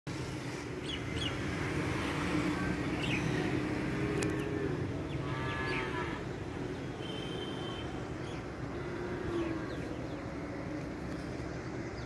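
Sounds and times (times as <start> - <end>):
distant traffic hum: 0.1 - 12.0
birds chirping: 2.8 - 10.7.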